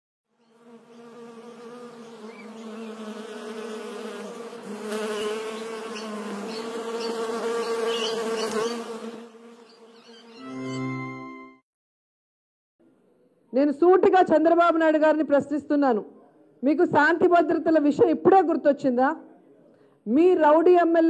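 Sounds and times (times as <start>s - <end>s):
bee buzzing: 0.3s - 10.4s.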